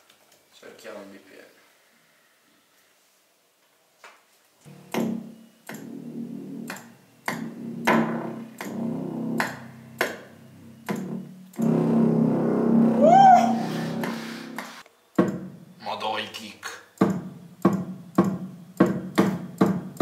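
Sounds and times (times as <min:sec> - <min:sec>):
synthesizer keyboard chords: 0:04.7 - 0:14.8.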